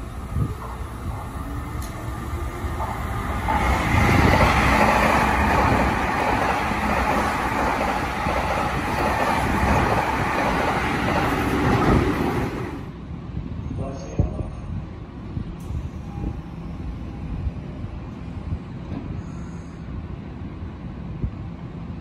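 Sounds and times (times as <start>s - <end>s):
electric train running past: 0.0s - 13.6s.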